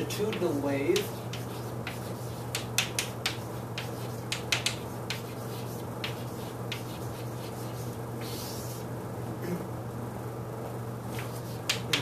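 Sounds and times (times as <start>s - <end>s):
steady low hum: 0.0s - 12.0s
chalk tapping on a blackboard: 0.2s - 8.6s, 11.2s - 12.0s.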